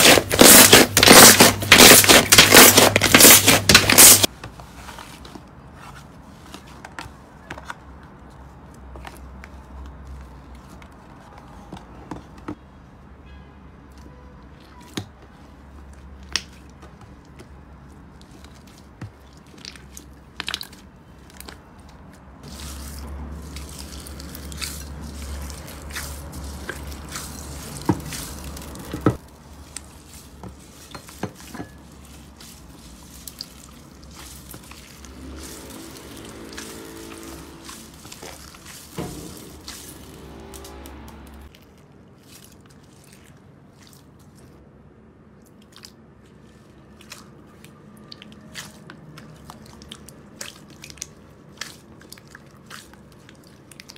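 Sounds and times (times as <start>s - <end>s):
slime squishing: 0.0s - 11.7s, 13.9s - 44.6s, 45.3s - 53.9s.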